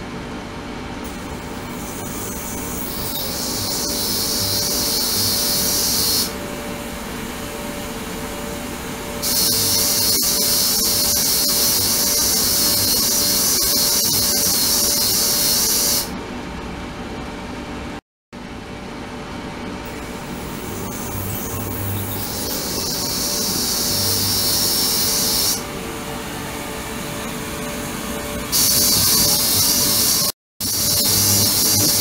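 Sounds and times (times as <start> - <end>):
steady low hum: 0.0 - 10.0, 16.1 - 32.0
ultrasonic cleaner hissing: 3.2 - 6.4, 22.4 - 25.7, 28.6 - 32.0.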